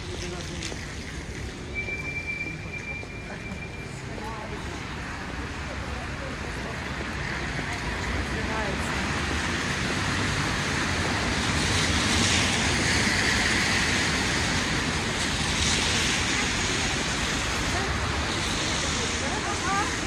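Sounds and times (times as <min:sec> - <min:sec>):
cars hissing on wet road: 0:03.6 - 0:20.0.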